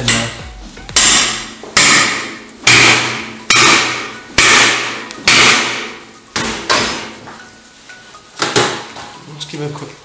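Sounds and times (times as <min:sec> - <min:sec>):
metal hammer blows ringing: 0:00.0 - 0:07.2.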